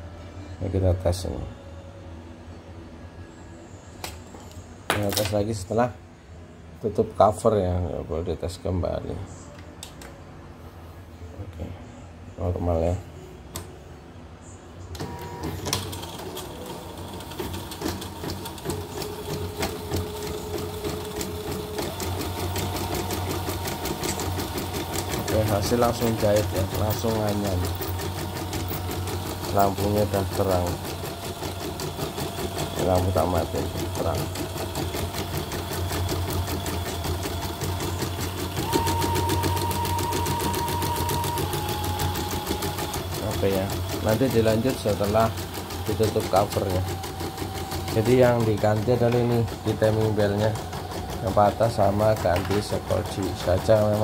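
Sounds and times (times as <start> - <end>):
embroidery machine stitching: 15.0 - 54.0
motor hum: 15.0 - 54.0.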